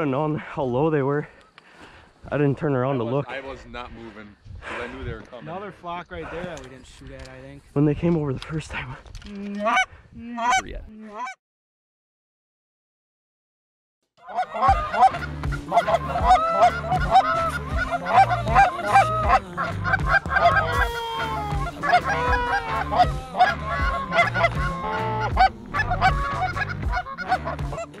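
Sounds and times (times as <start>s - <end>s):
goose honking and clucking: 9.6s - 11.4s, 14.2s - 28.0s.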